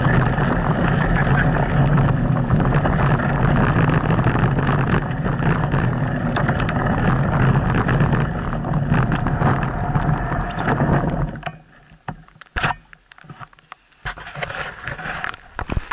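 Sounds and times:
wind on microphone: 0:00.0 - 0:11.4
bike rattling: 0:00.0 - 0:12.7
bike clicks and knocks: 0:00.0 - 0:13.5
bike tyres rolling on mud: 0:00.0 - 0:15.9.

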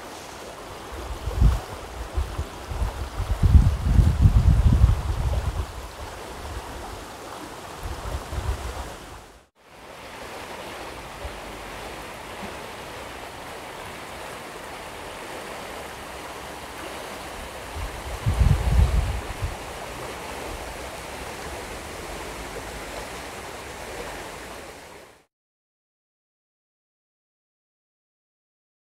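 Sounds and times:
steady outdoor hiss: 0:00.0 - 0:25.3
wind buffeting microphone: 0:00.9 - 0:07.1, 0:07.7 - 0:09.4, 0:17.3 - 0:23.4.

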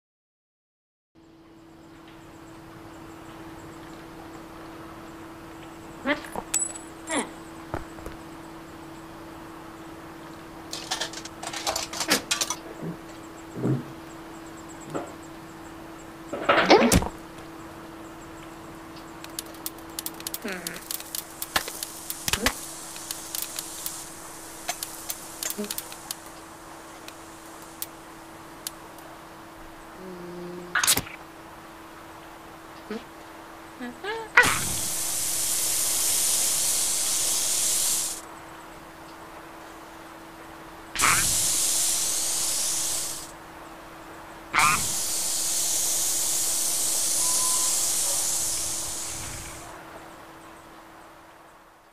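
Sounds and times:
steady low hum: 0:01.2 - 0:51.9
soda can fizzing: 0:19.3 - 0:26.4, 0:34.4 - 0:38.2, 0:41.0 - 0:43.3, 0:44.6 - 0:49.6.

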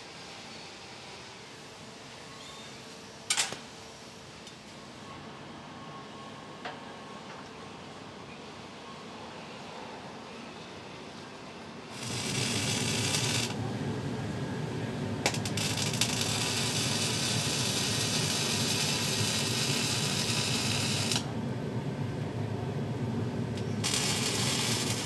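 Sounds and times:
continuous low hum: 0:02.9 - 0:25.0
welding arc crack: 0:11.9 - 0:13.6, 0:15.2 - 0:21.3, 0:23.8 - 0:25.0
welding arc hiss: 0:11.9 - 0:13.6, 0:15.2 - 0:21.3, 0:23.6 - 0:25.0.

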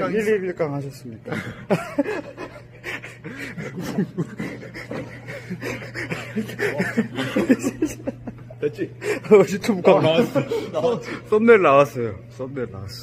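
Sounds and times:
steady low hum: 0:00.0 - 0:13.0
men laughing: 0:01.2 - 0:11.5.

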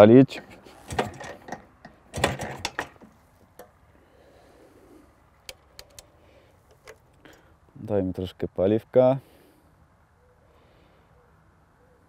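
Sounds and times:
sharp mechanical clicks: 0:00.9 - 0:03.7, 0:05.4 - 0:06.1.

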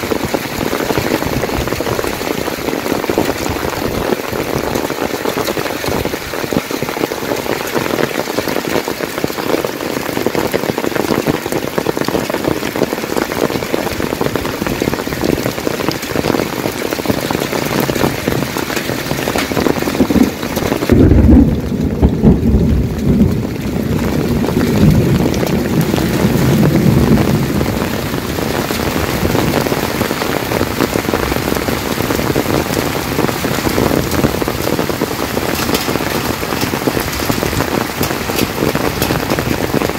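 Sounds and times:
heavy rain falling: 0:00.0 - 0:39.9
deep rumble of thunder: 0:11.0 - 0:39.9.

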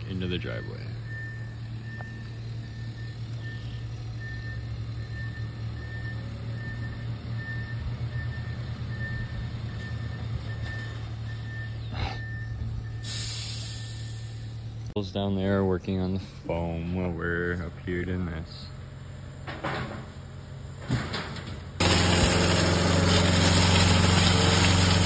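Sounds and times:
backup alarm beeping: 0:00.0 - 0:14.1
diesel engine running: 0:00.0 - 0:25.0
short hiss: 0:13.0 - 0:14.6.

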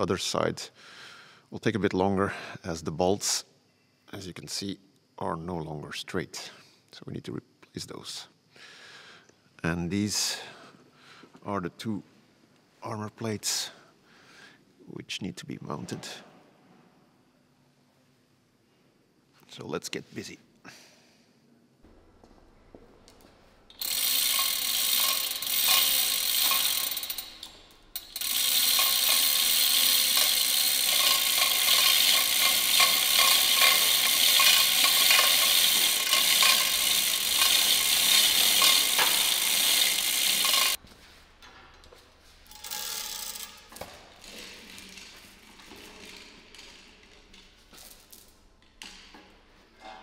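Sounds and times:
chain hoist rattling and clicking: 0:23.7 - 0:40.8, 0:42.5 - 0:48.3
chain clinks: 0:42.5 - 0:43.7.

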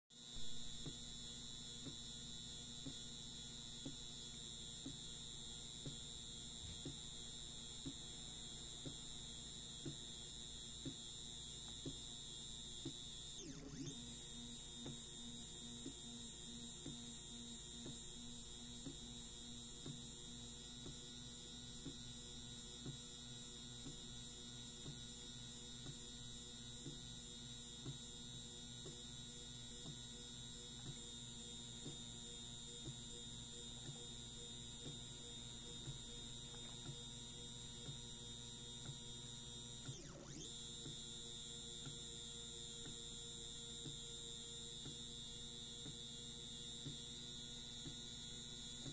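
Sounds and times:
faint regular ticks: 0:00.7 - 0:48.9
stepper motor humming: 0:05.7 - 0:19.0.

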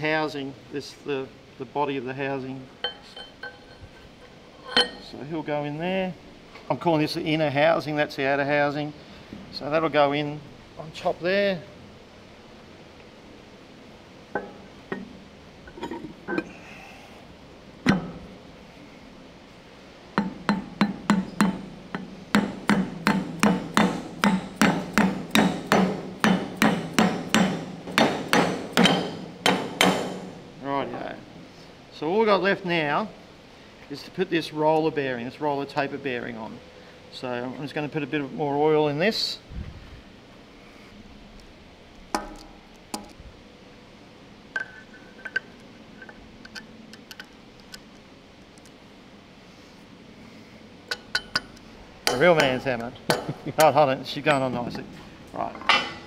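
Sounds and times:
mallet striking metal housing: 0:02.8 - 0:05.1, 0:20.2 - 0:30.4
metal clinks with ringing: 0:02.8 - 0:05.1.

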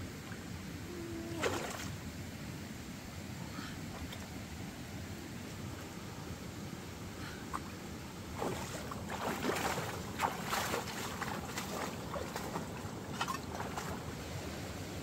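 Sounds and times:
stream rushing and splashing: 0:00.0 - 0:15.0.

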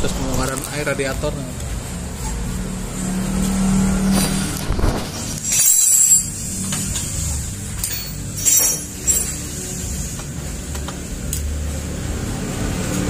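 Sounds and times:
low workshop hum: 0:00.0 - 0:13.0
metal tools scraping and clattering: 0:04.1 - 0:10.0.

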